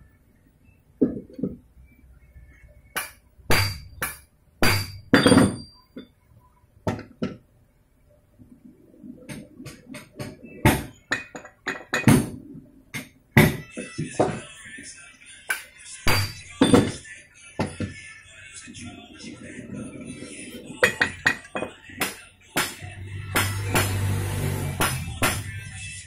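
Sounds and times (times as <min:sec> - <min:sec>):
metal-on-metal knocks and clinks: 0:03.0 - 0:06.1, 0:10.0 - 0:12.4.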